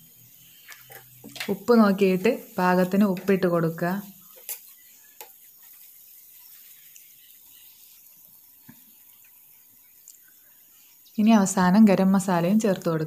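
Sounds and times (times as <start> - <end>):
low steady hiss: 0.0 - 13.0
spoon scraping iron pan: 4.2 - 5.8.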